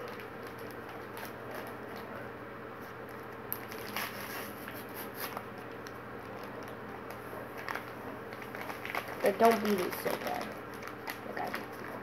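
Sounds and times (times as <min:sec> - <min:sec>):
packet rustling and crinkling: 0:00.0 - 0:02.1, 0:03.1 - 0:12.0.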